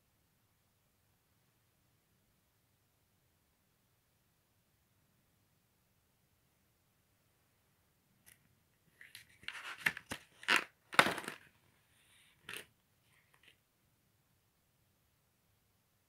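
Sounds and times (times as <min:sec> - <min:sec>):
paper page rustling: 0:09.0 - 0:11.5, 0:12.3 - 0:13.6.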